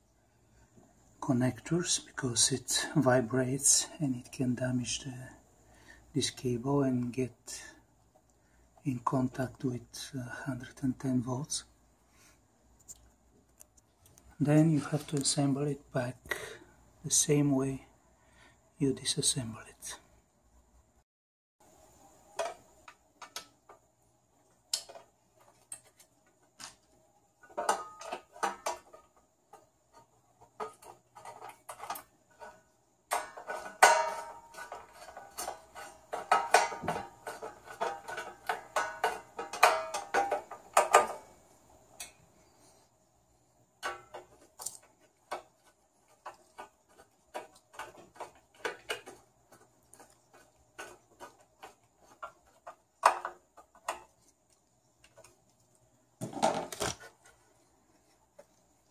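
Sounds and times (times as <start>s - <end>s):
metal clicks and clatter: 27.4s - 41.4s.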